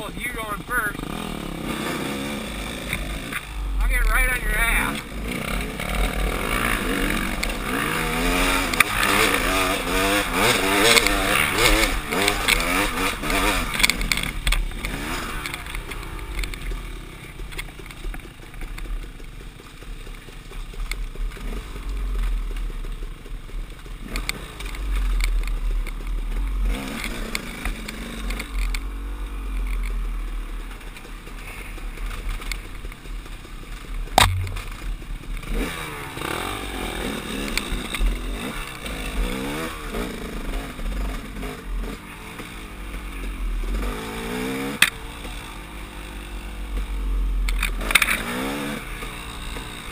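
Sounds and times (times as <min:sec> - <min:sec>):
dirt bike engine revving: 0:00.0 - 0:49.9
sharp knock: 0:34.2 - 0:34.9.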